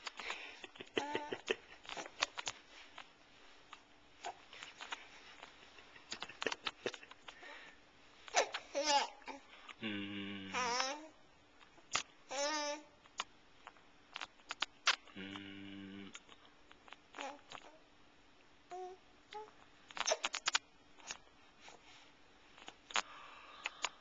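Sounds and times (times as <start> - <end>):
low steady hum: 0.0 - 24.0
baby babbling and cooing: 8.3 - 9.5, 10.5 - 11.2, 12.3 - 12.9, 17.1 - 17.8, 18.7 - 20.4.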